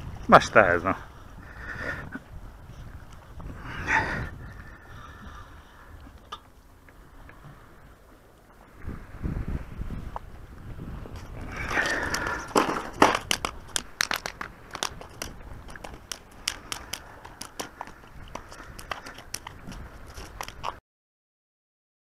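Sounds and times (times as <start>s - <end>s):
fish tail slapping on stone: 11.7s - 20.6s.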